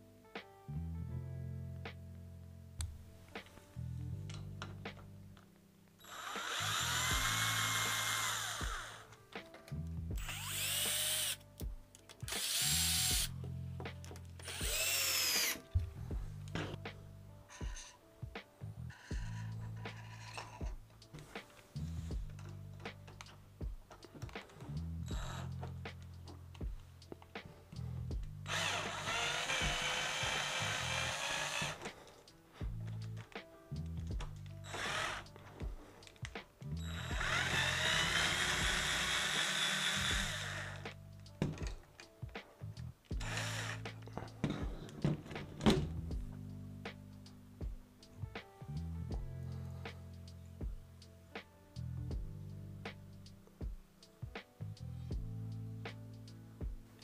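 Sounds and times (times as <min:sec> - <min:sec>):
cordless drill driving screws: 0:06.0 - 0:09.1, 0:10.2 - 0:11.4, 0:12.3 - 0:13.3, 0:14.4 - 0:15.7, 0:25.1 - 0:25.7, 0:28.5 - 0:32.1, 0:34.6 - 0:35.4, 0:36.8 - 0:40.9, 0:43.2 - 0:44.2.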